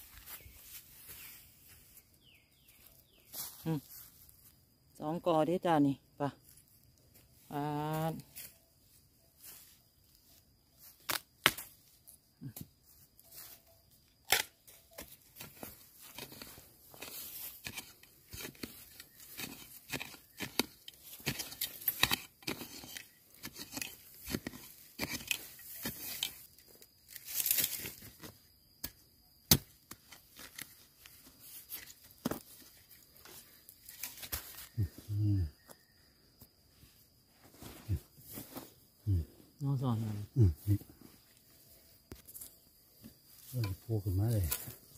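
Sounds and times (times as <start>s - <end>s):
bamboo shoots snapping: 11.0s - 11.8s.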